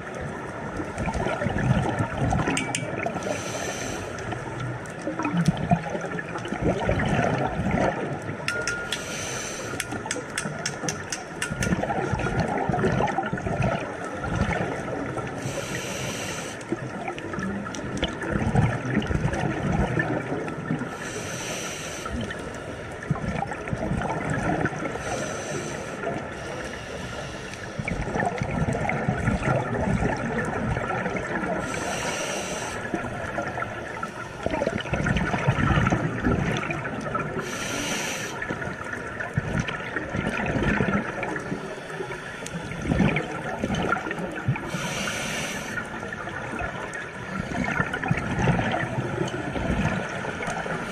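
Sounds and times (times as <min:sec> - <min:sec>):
air bubbling underwater: 0:01.0 - 0:03.2, 0:09.8 - 0:14.8, 0:34.5 - 0:37.6
scuba regulator hissing: 0:37.4 - 0:38.4.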